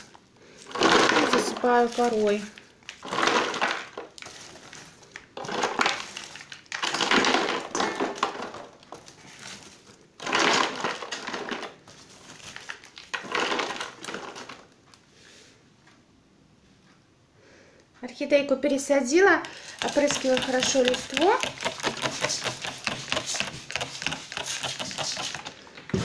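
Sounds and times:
dry bark chunks crunching: 0.0s - 11.7s.

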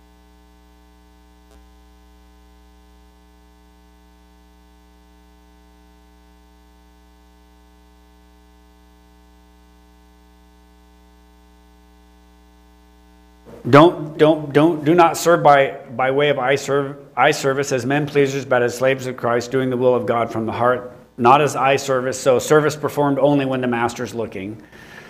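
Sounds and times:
electrical mains hum: 0.0s - 25.0s
man speaking: 13.5s - 24.6s.

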